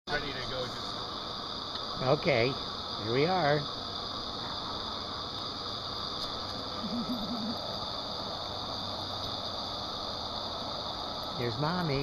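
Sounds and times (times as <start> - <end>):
hot tub jets bubbling water: 0.1 - 12.0
person humming: 6.8 - 7.6.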